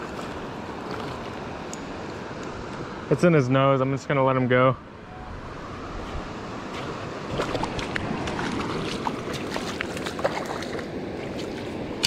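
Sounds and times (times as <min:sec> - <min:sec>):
fish splashing in shallow water: 0:00.0 - 0:02.4, 0:06.7 - 0:12.0
river water rushing: 0:00.0 - 0:12.0.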